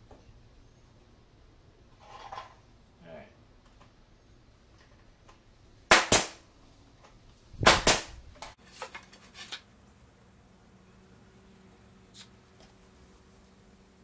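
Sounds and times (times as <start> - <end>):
pneumatic nailer shots: 5.9 - 6.4, 7.6 - 8.2.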